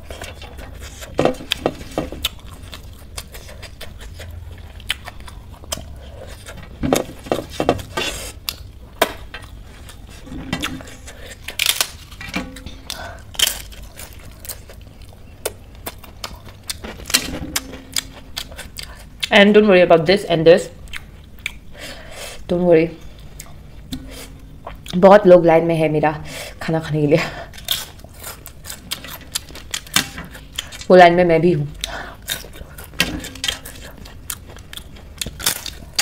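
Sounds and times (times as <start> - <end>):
eating sounds: 0.0 - 6.8.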